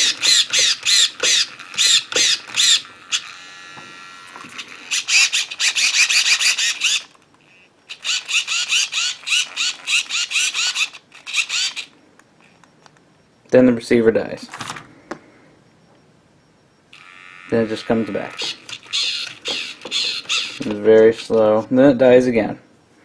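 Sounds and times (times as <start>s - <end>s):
servo motor chattering: 0.0s - 12.8s, 16.9s - 22.0s.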